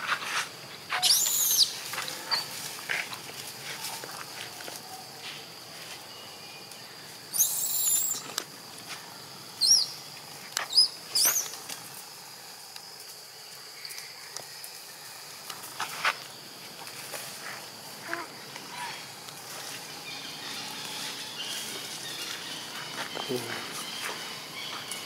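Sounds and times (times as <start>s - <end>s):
high insect drone: 0.0s - 25.0s
young monkey squealing: 1.0s - 2.5s, 7.3s - 8.3s, 10.7s - 11.5s.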